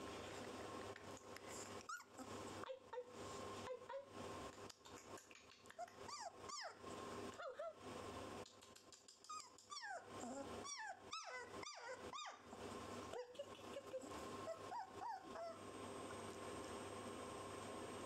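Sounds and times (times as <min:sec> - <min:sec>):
puppy whimpering: 0:01.8 - 0:02.3, 0:05.8 - 0:06.8, 0:09.3 - 0:12.4, 0:13.1 - 0:15.6.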